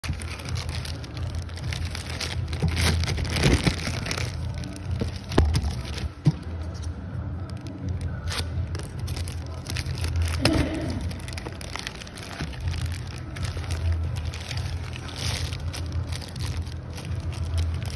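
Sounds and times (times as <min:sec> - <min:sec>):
plastic bag crinkling: 0:00.0 - 0:06.2, 0:07.4 - 0:17.9.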